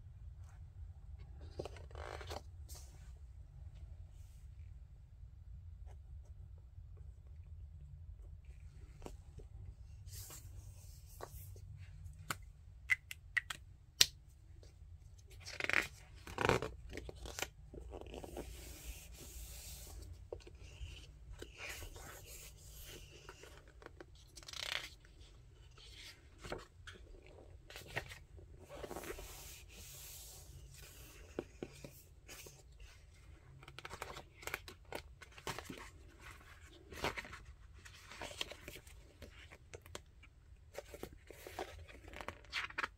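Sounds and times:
paper pages rustling: 15.4s - 40.0s.

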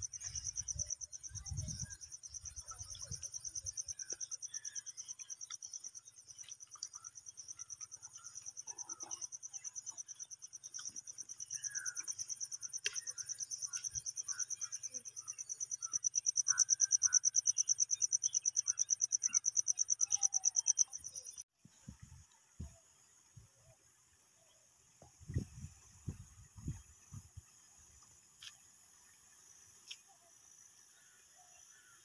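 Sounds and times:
faint bird chirps: 0.0s - 21.4s
high-pitched insect trill: 0.0s - 21.4s.

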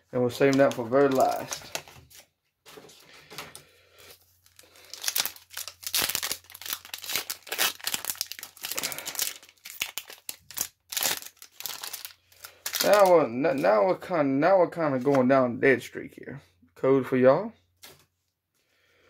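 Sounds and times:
foil wrapper tearing and crinkling: 0.4s - 2.2s, 4.4s - 13.6s.

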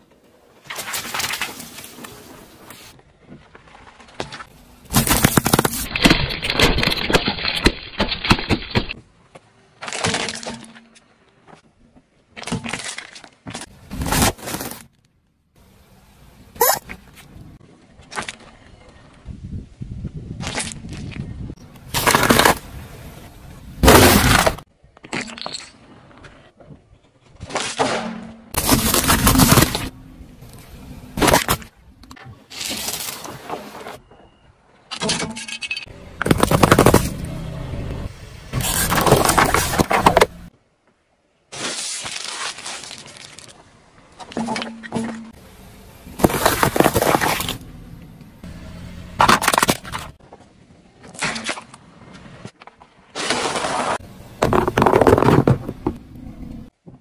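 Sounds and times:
plastic bottles crushed under tyre: 4.2s - 9.0s, 9.8s - 11.0s, 21.8s - 22.8s, 23.8s - 25.7s, 27.4s - 31.7s, 34.9s - 37.5s, 38.6s - 40.5s, 46.0s - 47.7s, 49.2s - 50.2s, 53.2s - 56.1s
foil balloon crackling and bursting: 4.9s - 9.0s, 23.8s - 24.6s, 28.6s - 29.9s, 38.6s - 40.3s.

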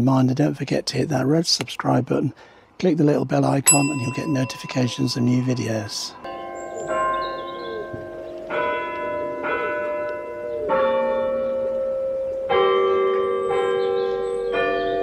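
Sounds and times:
church bells ringing: 3.7s - 15.0s.

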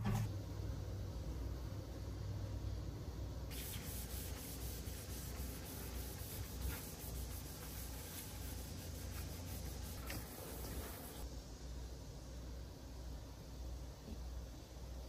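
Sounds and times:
low steady hum: 0.0s - 15.0s
cloth wiping cabinet door: 3.5s - 11.2s.

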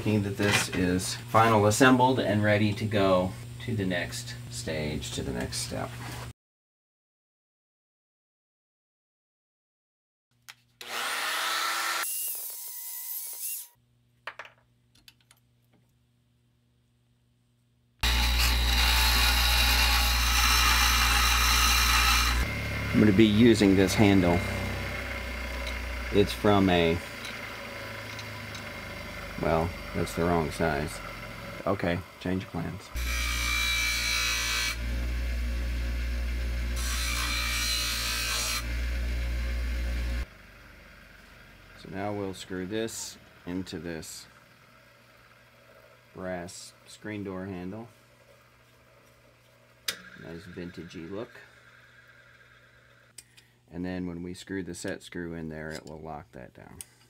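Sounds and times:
bench grinder motor whine: 18.0s - 46.4s, 49.9s - 53.1s
hissing grinding noise: 18.0s - 53.2s.

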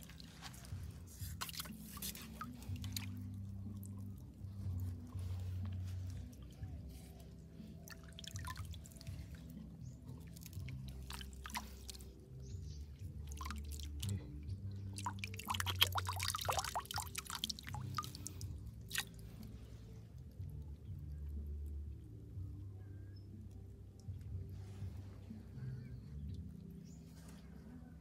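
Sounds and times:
hands splashing in water: 0.0s - 4.0s, 7.8s - 9.5s, 10.2s - 12.1s, 13.2s - 14.2s, 14.9s - 19.2s
soft background music: 0.0s - 28.0s.

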